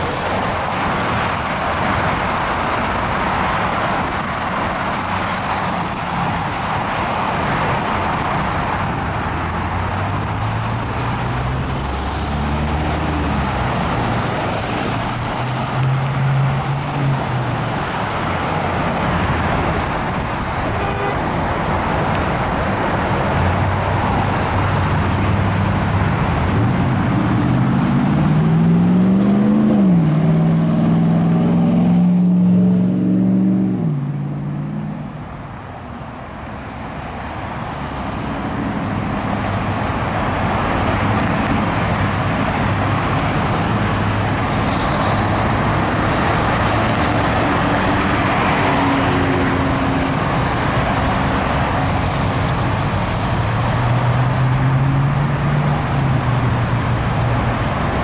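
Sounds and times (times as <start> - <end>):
traffic passing: 0.0 - 58.0
vehicle engine accelerating: 9.3 - 19.9, 23.5 - 35.2.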